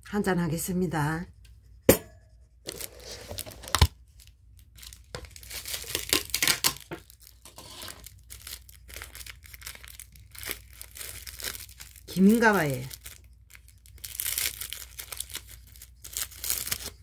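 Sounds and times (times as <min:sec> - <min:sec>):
plastic packet crinkling: 0:02.7 - 0:17.0.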